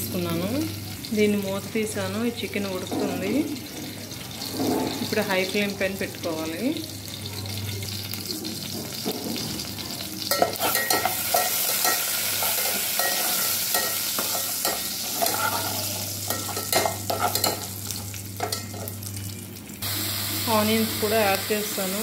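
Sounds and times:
spices sizzling in hot oil: 0.0s - 22.0s
metal spatula scraping a pot: 10.3s - 18.9s.

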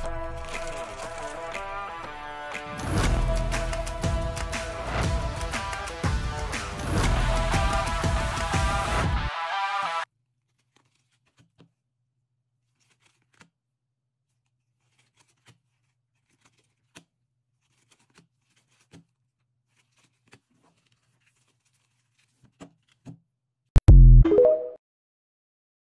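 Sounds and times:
trading cards clicking and snapping: 10.5s - 11.8s, 12.7s - 13.5s, 14.8s - 23.2s
short electronic jingle: 23.8s - 24.8s.

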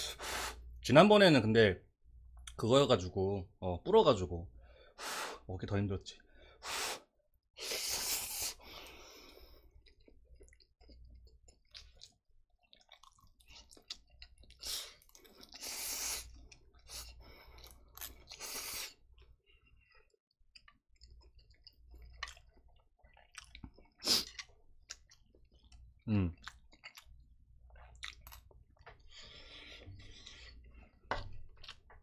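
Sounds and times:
close chewing with mouth clicks: 9.6s - 32.0s.

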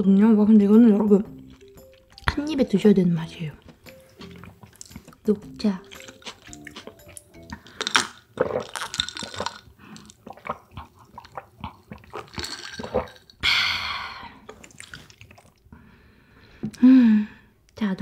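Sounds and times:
sipping and gulping swallows: 1.0s - 2.4s, 3.4s - 13.4s, 14.2s - 15.7s.

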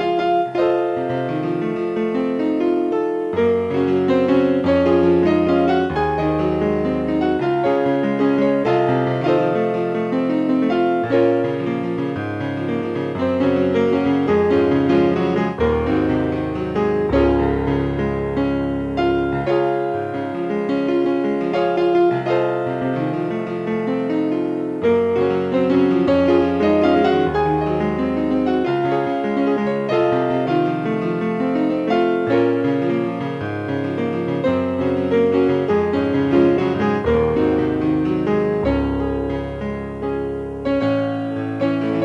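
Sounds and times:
solo piano playing: 0.0s - 42.0s.

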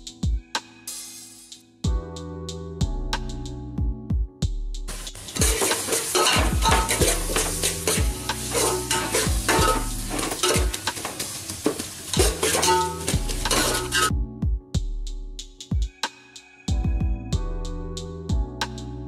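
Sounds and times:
frying sizzle: 4.9s - 14.1s
metal spatula scraping pot: 5.2s - 14.1s.

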